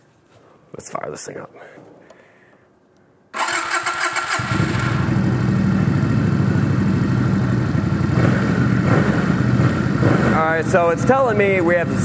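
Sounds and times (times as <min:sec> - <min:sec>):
motorcycle electric starter: 0:03.4 - 0:06.9
motorcycle engine idling: 0:03.4 - 0:12.0.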